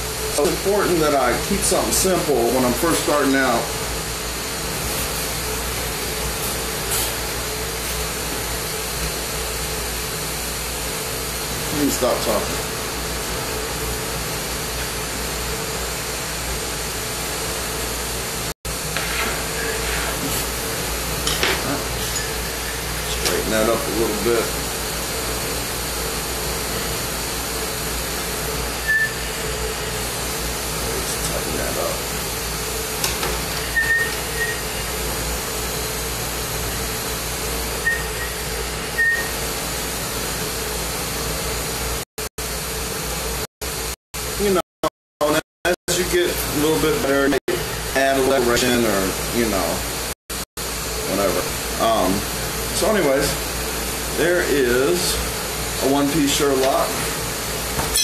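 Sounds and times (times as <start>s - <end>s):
steady hum: 0.0s - 42.0s
torch burning with a hiss: 18.3s - 39.8s.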